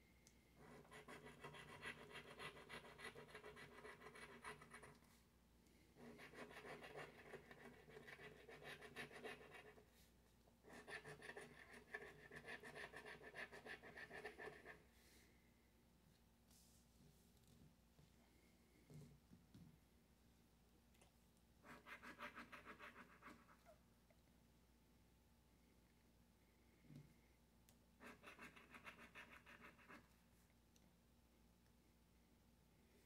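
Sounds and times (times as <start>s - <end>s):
faint rapid scratching: 21.6s - 23.8s, 28.0s - 30.2s.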